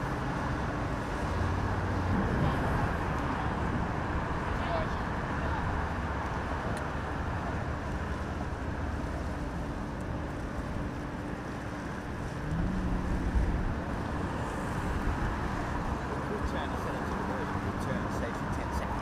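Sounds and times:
wind buffeting microphone: 1.3 - 16.1.

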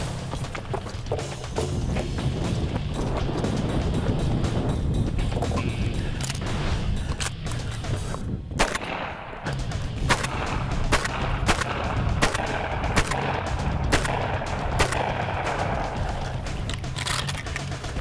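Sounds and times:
background music with beat: 0.0 - 18.0
gunshots: 8.6 - 16.3.

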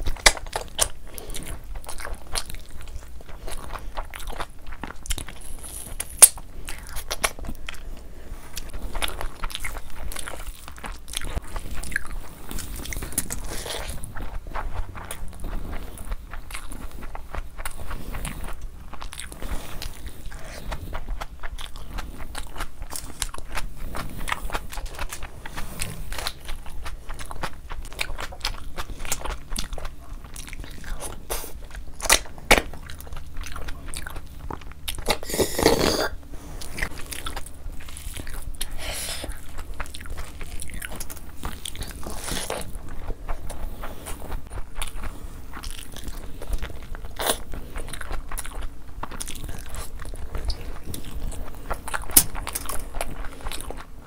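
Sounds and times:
chewing and biting food: 0.0 - 54.0
mouth clicks and smacks: 22.6 - 36.2.

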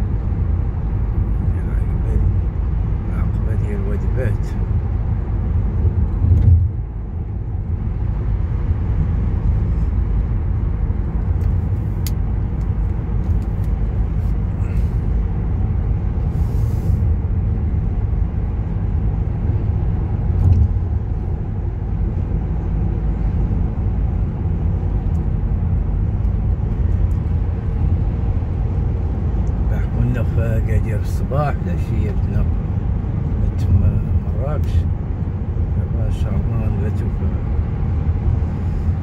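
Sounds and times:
car road and engine rumble: 0.0 - 39.0.

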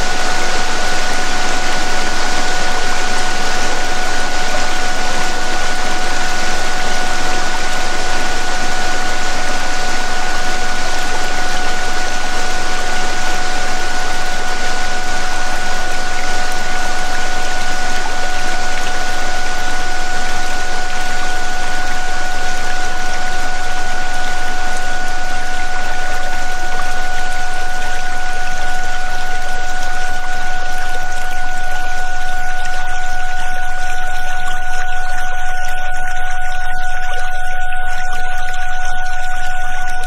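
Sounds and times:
steady pure tones: 0.0 - 40.0.

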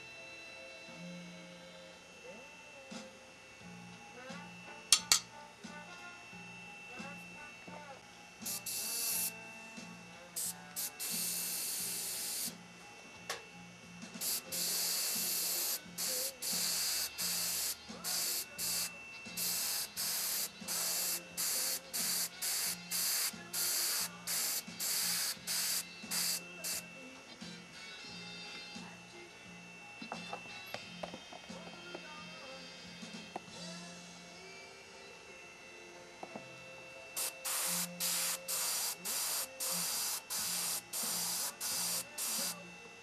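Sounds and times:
airbrush spraying hissing bursts: 8.5 - 9.4, 10.4 - 12.5, 14.2 - 26.9, 37.2 - 42.6.

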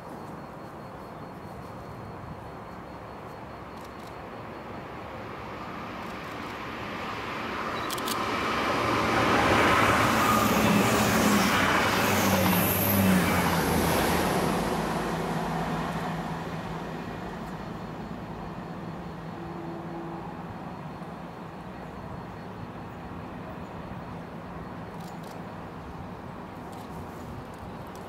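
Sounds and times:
train wheels rumbling on rail: 5.7 - 21.1.

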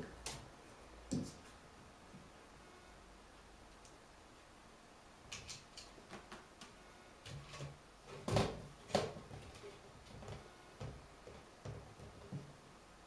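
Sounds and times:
wicker tapping and scraping: 5.4 - 12.6.

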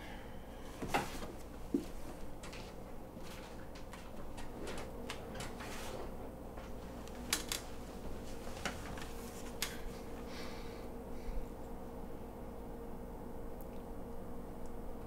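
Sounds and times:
faint electrical hum: 0.0 - 15.0
pages rustling: 2.5 - 10.0
paper snaps: 7.1 - 7.7.

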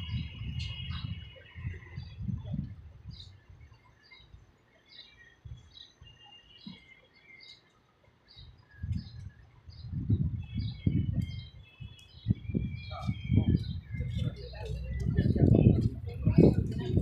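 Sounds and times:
small birds chirping: 0.0 - 17.0
street traffic rumble: 0.0 - 17.0.

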